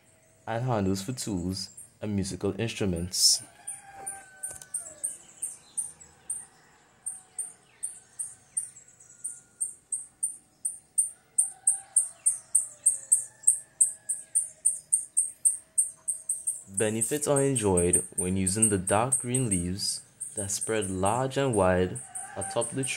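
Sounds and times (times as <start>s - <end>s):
high-pitched chirps: 7.1s - 22.9s.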